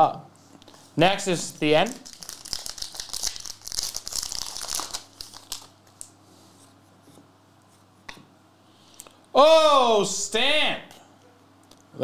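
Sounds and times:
plastic wrapper tearing and crinkling: 0:01.9 - 0:06.1.

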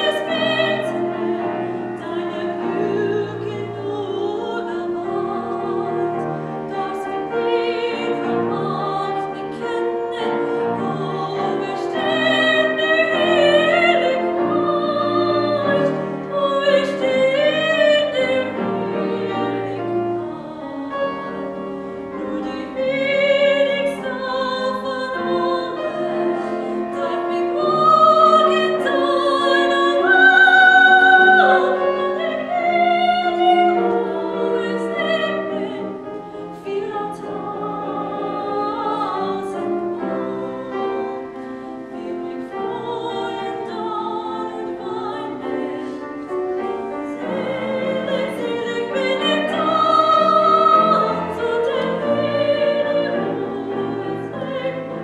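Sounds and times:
classical solo singing: 0:00.0 - 0:55.0
piano accompaniment: 0:00.0 - 0:55.0.

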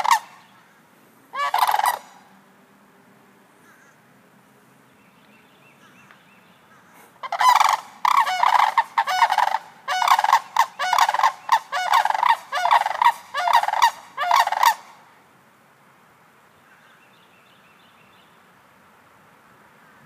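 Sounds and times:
cranes rattling calls: 0:00.0 - 0:00.5, 0:01.3 - 0:02.2, 0:06.7 - 0:15.0.

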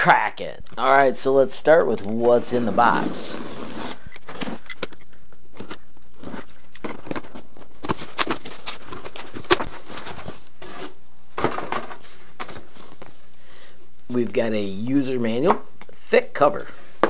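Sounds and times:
cardboard and foam rustling: 0:01.9 - 0:13.4.

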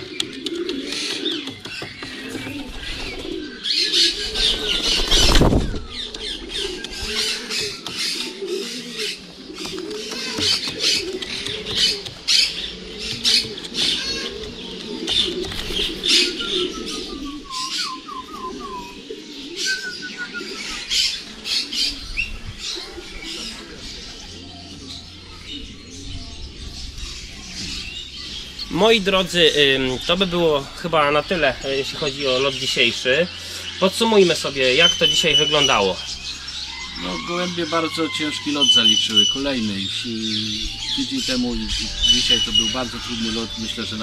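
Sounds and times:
pigeons cooing: 0:00.0 - 0:44.0
small birds chirping: 0:00.0 - 0:44.0
wing flaps and clatters: 0:04.3 - 0:08.3, 0:09.6 - 0:16.3.

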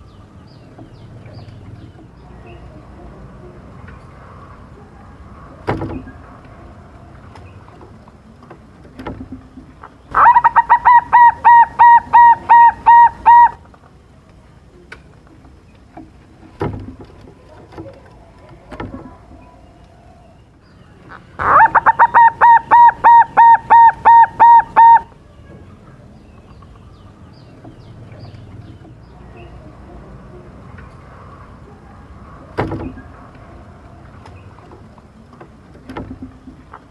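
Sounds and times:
dove cooing: 0:10.1 - 0:13.6, 0:21.4 - 0:25.2.

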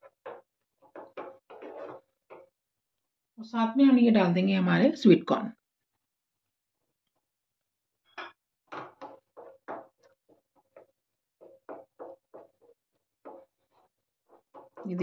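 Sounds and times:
wooden spatula scraping frying pan: 0:00.0 - 0:02.6, 0:08.6 - 0:15.0.

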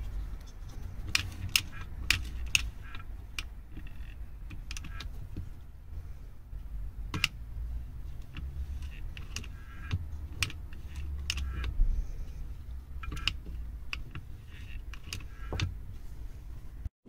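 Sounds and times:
recoil starter clicking and rattling: 0:08.2 - 0:11.8.

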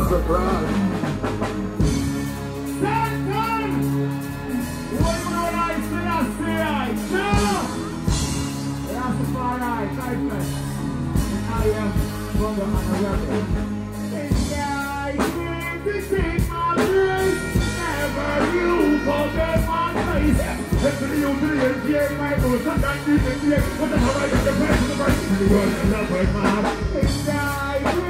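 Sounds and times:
dancehall backing track: 0:00.0 - 0:28.0
man singing into a microphone: 0:14.1 - 0:28.0.

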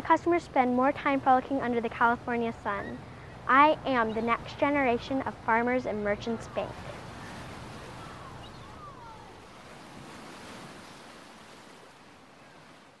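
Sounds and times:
surf washing: 0:00.0 - 0:13.0
wind: 0:00.0 - 0:13.0
faint distant calls: 0:01.6 - 0:10.6.

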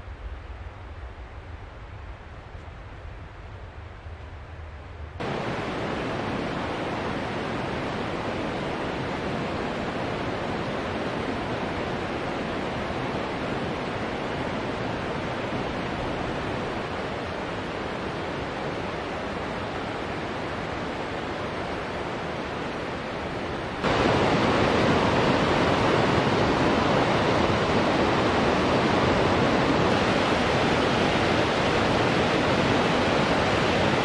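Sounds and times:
creek water rushing: 0:05.2 - 0:34.0.

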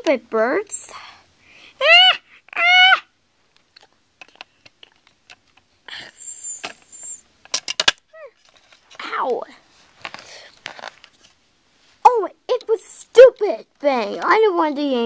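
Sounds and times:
child high-pitched calls: 0:01.8 - 0:03.1
plastic toys clicking and tapping: 0:03.8 - 0:05.7, 0:07.4 - 0:08.0.

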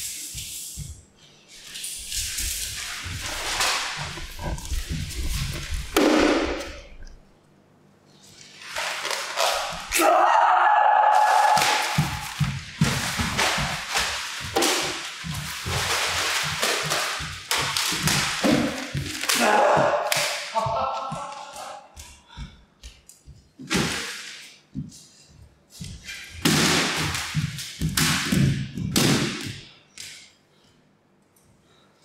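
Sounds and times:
paper swishing and flapping: 0:00.0 - 0:06.0, 0:08.2 - 0:09.9, 0:11.5 - 0:19.4
bare feet slapping on floor: 0:11.4 - 0:30.2.

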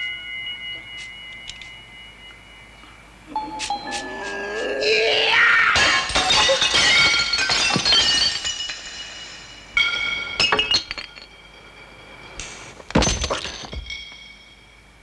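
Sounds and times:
glass breaking and clinking: 0:05.8 - 0:14.4.

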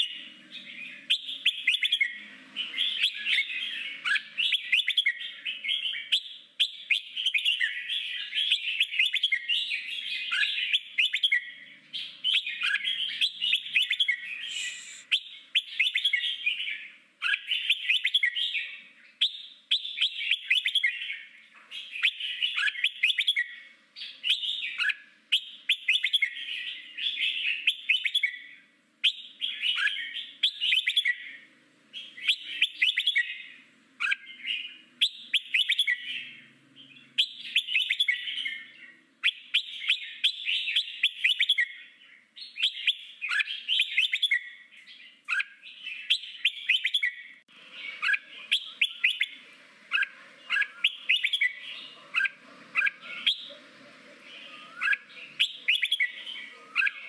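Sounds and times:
bulbul singing warbled phrases: 0:10.2 - 0:16.4, 0:45.3 - 0:57.0.

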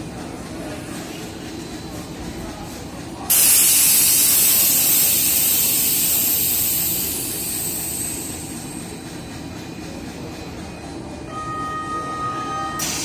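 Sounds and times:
compressed air hissing from train: 0:03.3 - 0:09.0, 0:12.8 - 0:13.0.

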